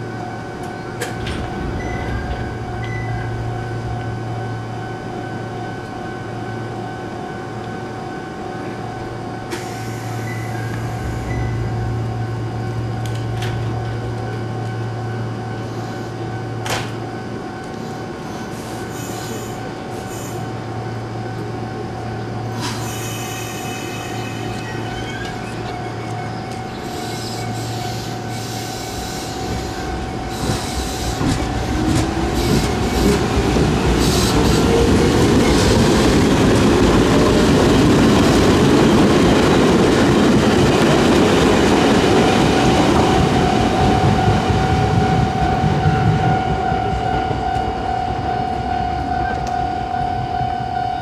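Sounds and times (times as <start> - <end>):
level crossing warning bell: 0.0 - 22.6, 23.9 - 51.0
train wheels rumbling on rails: 0.0 - 51.0
electric train motors whining: 17.6 - 40.2.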